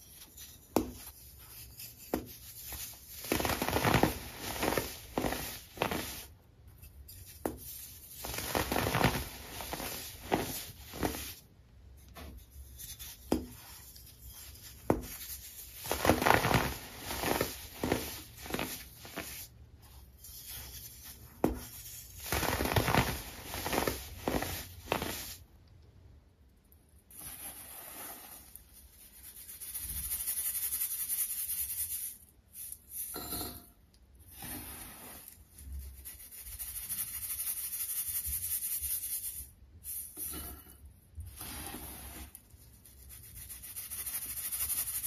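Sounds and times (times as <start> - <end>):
baking soda clumps crunching: 0.3 - 6.4, 7.3 - 11.4, 13.0 - 25.4.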